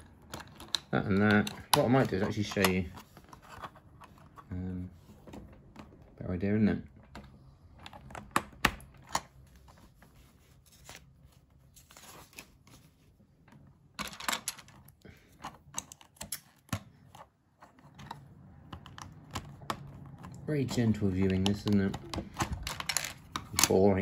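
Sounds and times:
paper page rustling: 9.4 - 13.2
plastic bricks clicking: 21.2 - 23.8.

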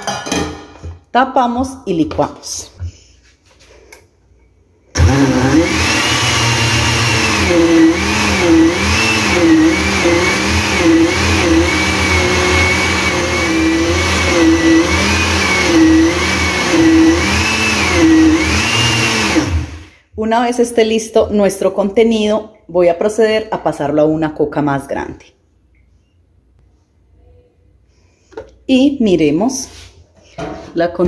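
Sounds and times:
blender motor churning batter: 5.0 - 19.9.

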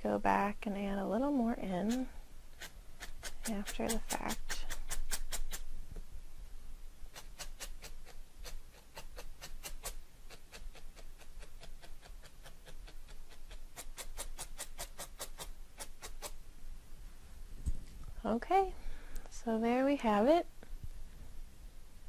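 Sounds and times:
felting needle stabbing foam: 2.6 - 5.7, 7.1 - 16.4.

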